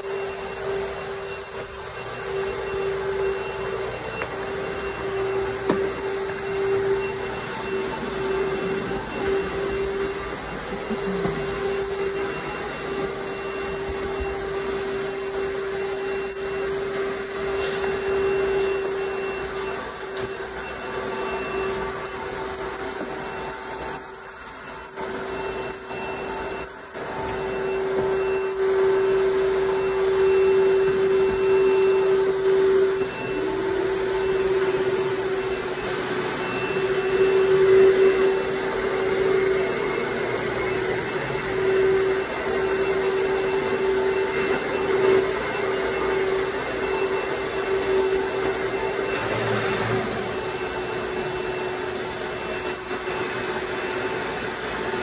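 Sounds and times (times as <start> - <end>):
pressure washer whine: 0.0 - 55.0.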